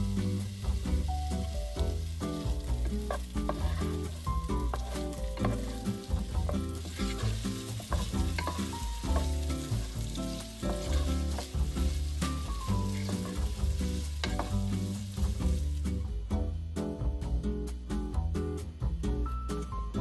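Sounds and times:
onion sizzling in oil: 0.0s - 16.6s
background music with bass line: 0.0s - 20.0s
wooden spatula scraping pan: 2.6s - 15.6s.

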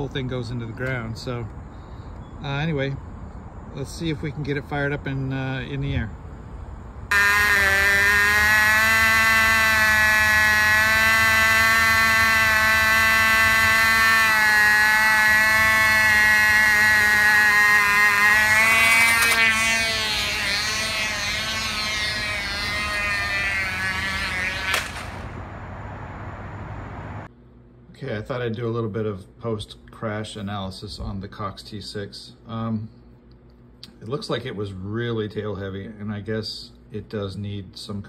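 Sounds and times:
model plane engine buzzing: 7.1s - 25.5s
sharp knock of plane crashing: 24.6s - 25.2s.

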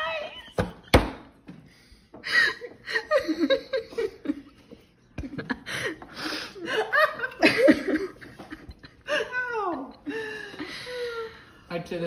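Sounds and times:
people laughing: 2.3s - 11.4s.

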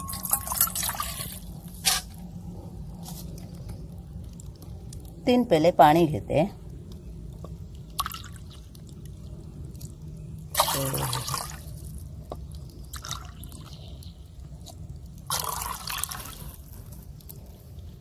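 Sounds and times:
water dripping: 0.0s - 1.7s, 6.6s - 18.0s.

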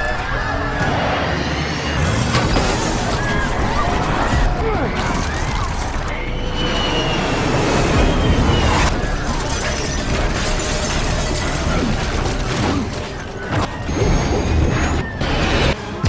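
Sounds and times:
rattling and crashing impacts: 2.0s - 6.1s, 8.9s - 14.7s.

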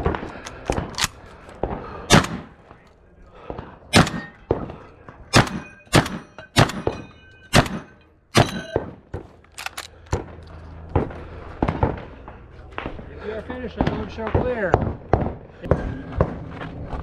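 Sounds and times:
pistol shots: 1.9s - 2.6s, 3.5s - 9.4s.

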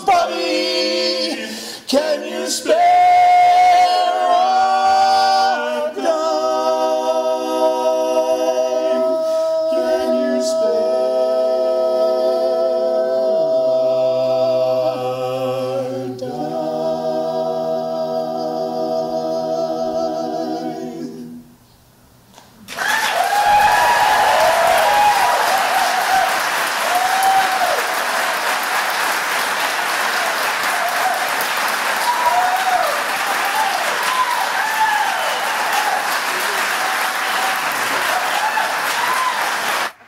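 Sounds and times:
a cappella group singing: 0.0s - 21.6s.

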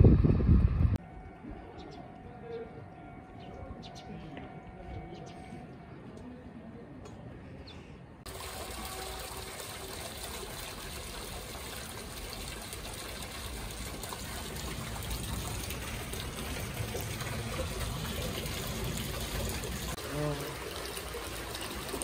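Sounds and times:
water trickling into a pool: 8.3s - 22.0s.

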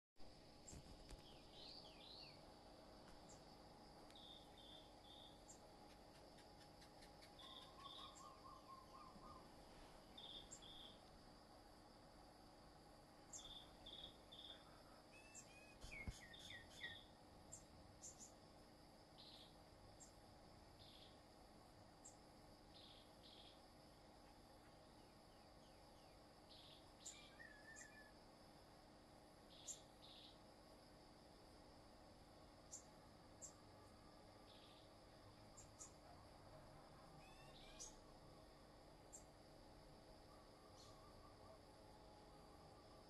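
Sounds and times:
high insect drone: 0.2s - 43.0s
songbirds chirping: 0.6s - 12.4s, 13.1s - 28.2s, 29.4s - 30.5s, 32.5s - 39.5s
bird trill: 7.3s - 9.5s, 13.3s - 17.1s, 26.6s - 28.1s, 37.2s - 38.0s.

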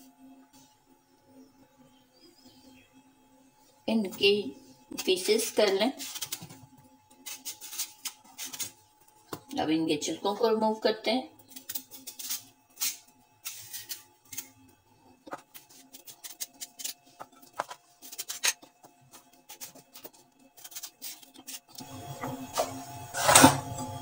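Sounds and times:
knife cutting melon rind: 4.9s - 8.8s, 11.4s - 14.6s, 15.2s - 21.8s.

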